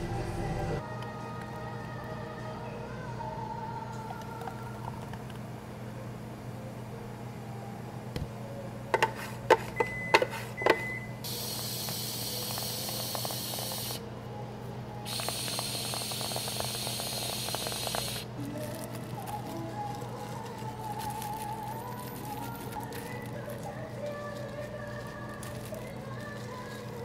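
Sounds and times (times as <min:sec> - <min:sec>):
whipped cream dispenser hissing: 0:11.2 - 0:14.1, 0:15.0 - 0:27.0.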